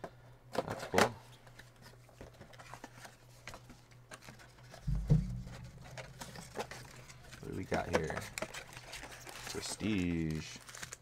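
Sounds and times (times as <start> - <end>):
card packaging rustling: 1.4 - 11.0
dull thump: 4.9 - 6.3.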